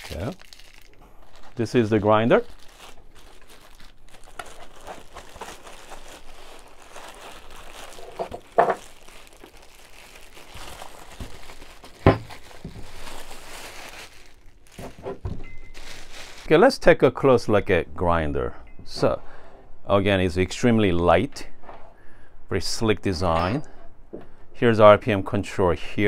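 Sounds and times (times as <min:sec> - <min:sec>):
plastic bag crinkling: 0:00.0 - 0:16.6.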